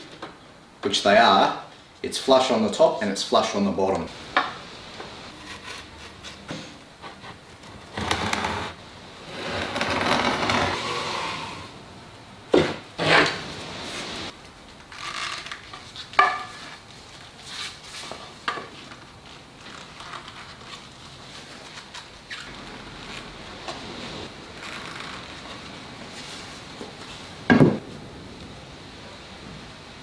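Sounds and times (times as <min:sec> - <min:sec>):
wooden panel scraping on workbench: 0:07.1 - 0:11.7.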